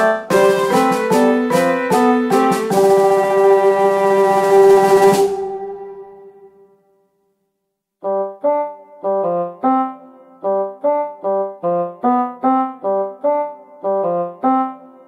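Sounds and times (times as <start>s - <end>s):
keyboard chord: 0.0s - 6.4s, 8.0s - 15.0s
piano-like tune: 0.0s - 6.6s, 8.0s - 15.0s.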